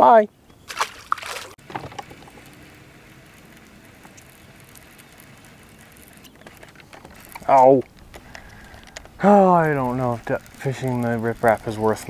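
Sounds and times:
breeze: 0:00.0 - 0:12.0
lake water lapping: 0:00.6 - 0:02.4.

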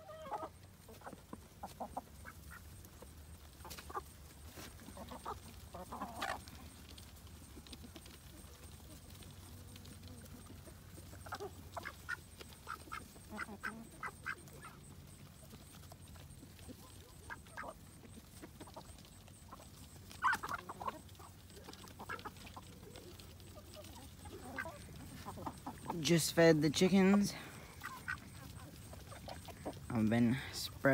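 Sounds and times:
ducks quacking: 0:00.0 - 0:02.8, 0:03.6 - 0:06.6, 0:10.2 - 0:15.6, 0:16.6 - 0:30.0
chickens clucking: 0:00.0 - 0:30.9.

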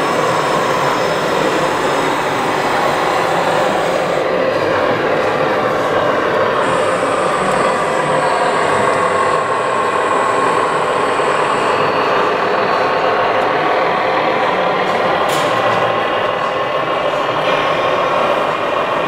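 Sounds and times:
thin high whine: 0:00.0 - 0:04.2
model trains rolling hum: 0:00.0 - 0:19.0.

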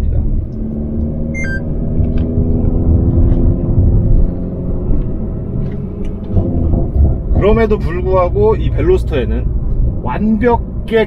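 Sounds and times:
car engine droning: 0:00.0 - 0:11.0
road and tyre rumble: 0:00.0 - 0:11.0
short electronic beep: 0:01.4 - 0:01.7.

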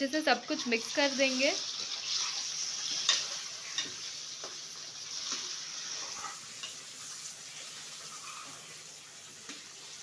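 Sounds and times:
chicken sizzling in oil: 0:00.0 - 0:10.0
spoon scraping metal pot: 0:05.1 - 0:07.2, 0:08.0 - 0:08.8.

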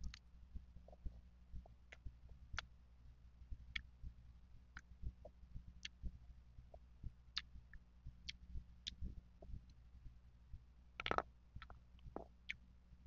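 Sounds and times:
wet mouth clicks and smacks: 0:11.0 - 0:12.6.

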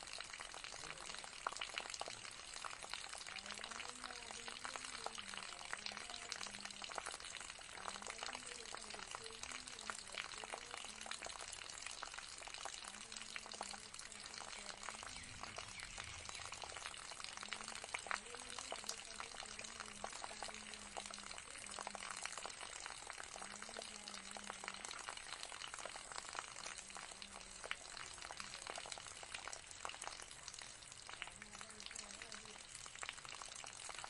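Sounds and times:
fountain water trickling: 0:00.0 - 0:34.0
water drips: 0:00.0 - 0:34.0.

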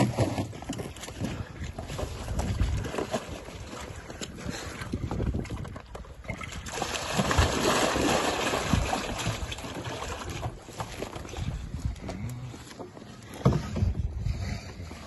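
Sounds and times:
water splashing: 0:00.0 - 0:11.6.

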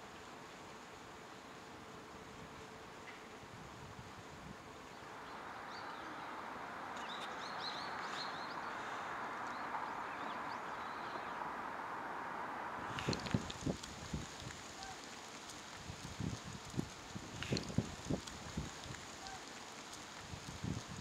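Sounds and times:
steady hissing hum: 0:00.0 - 0:21.0
faint bird chirps: 0:04.8 - 0:11.8.

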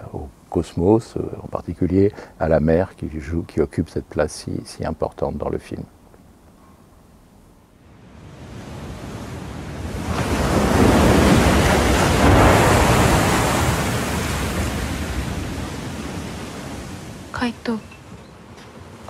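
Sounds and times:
sea surf breaking on a beach: 0:08.0 - 0:18.1.

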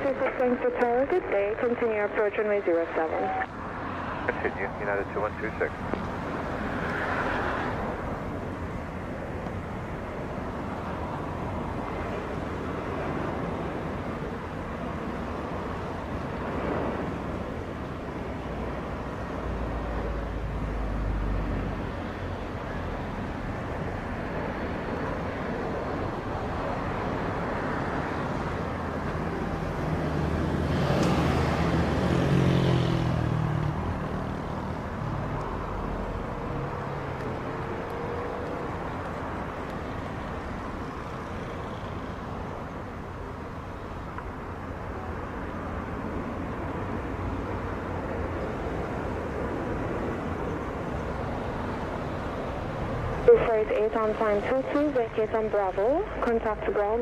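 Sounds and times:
distant jet engine noise: 0:00.0 - 0:57.0
outdoor air: 0:00.0 - 0:57.0.

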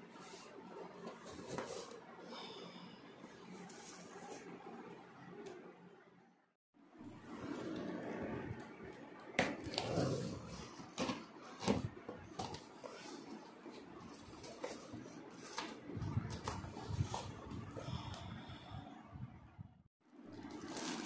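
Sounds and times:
cardboard and plastic wrap scraping: 0:09.6 - 0:17.7, 0:20.4 - 0:21.0.

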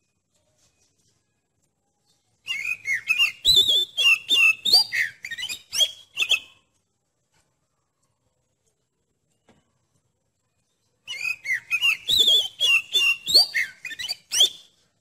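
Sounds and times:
bird singing whistled notes: 0:02.0 - 0:06.7, 0:11.0 - 0:15.0.

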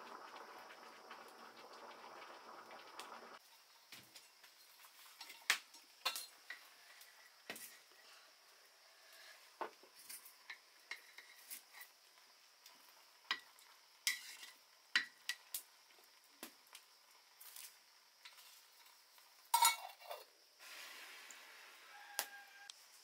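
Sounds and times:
metal spoon stirring in pot: 0:10.0 - 0:12.0, 0:13.3 - 0:15.5, 0:18.2 - 0:20.3
pot lid clattering: 0:19.5 - 0:20.2.

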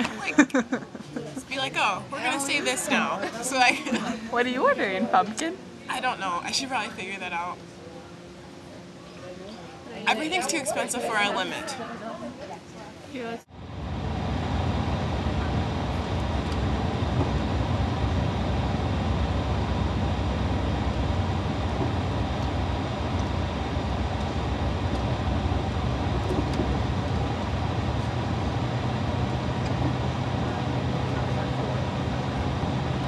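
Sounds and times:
bus engine drone: 0:00.0 - 0:06.4, 0:13.4 - 0:33.0
low hum: 0:13.4 - 0:33.0
road noise: 0:13.4 - 0:33.0.

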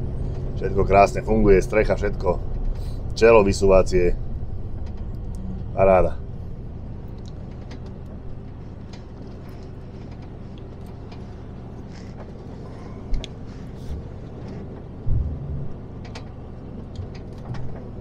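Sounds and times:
truck engine and road rumble: 0:00.0 - 0:18.0
low thump: 0:15.1 - 0:15.7.

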